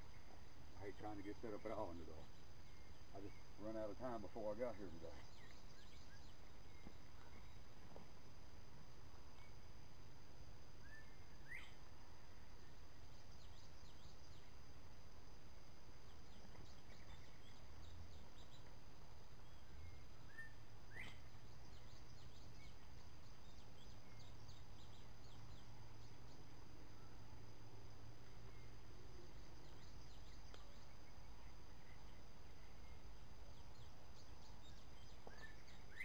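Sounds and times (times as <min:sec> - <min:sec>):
faint chirps: 0:00.0 - 0:36.0.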